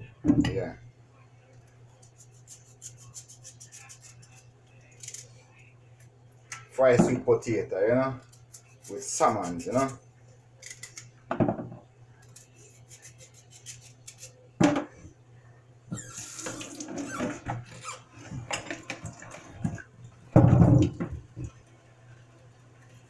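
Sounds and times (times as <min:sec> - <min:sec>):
knocks against sink and bowl: 0:11.3 - 0:11.8, 0:20.4 - 0:21.2.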